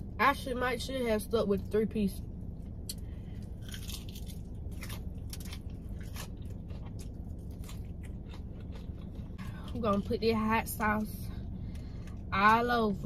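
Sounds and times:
fried chicken crunching: 2.9 - 10.2.

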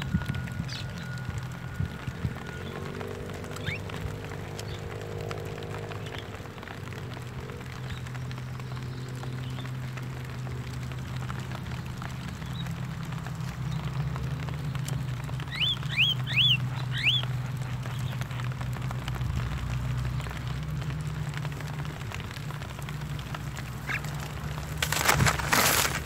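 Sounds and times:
myna bird calls: 2.4 - 4.9, 14.7 - 18.6, 23.8 - 25.9.

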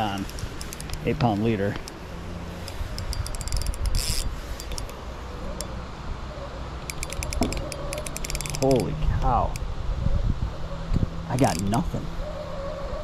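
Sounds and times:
fishing reel clicking: 0.0 - 5.0, 6.8 - 9.6, 11.4 - 11.8.

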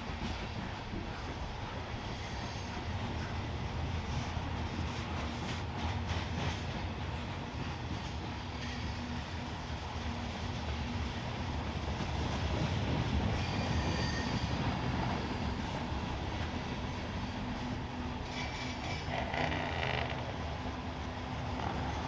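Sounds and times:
freight train rumbling past: 0.0 - 22.0
faint wheel squeals: 13.3 - 14.6.

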